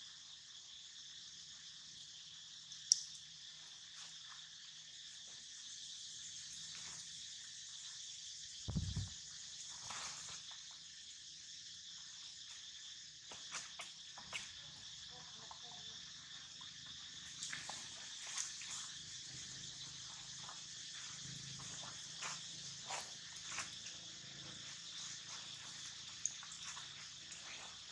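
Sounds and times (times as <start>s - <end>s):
high-pitched insect chorus: 0.0s - 27.9s.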